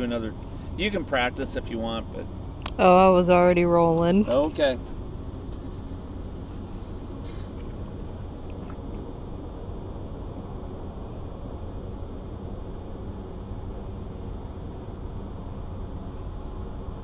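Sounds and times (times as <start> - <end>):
distant jet aircraft rumble: 0.0 - 17.0.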